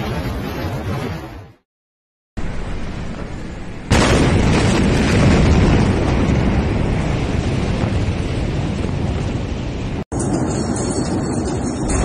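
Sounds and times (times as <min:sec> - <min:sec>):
explosion rumble: 0:02.4 - 0:10.8.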